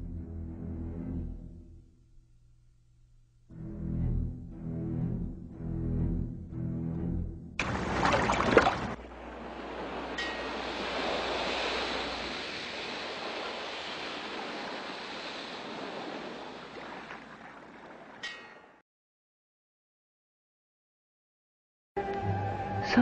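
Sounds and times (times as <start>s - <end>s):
wave crashing: 7.6s - 18.2s
ocean surf washing in: 7.6s - 18.3s.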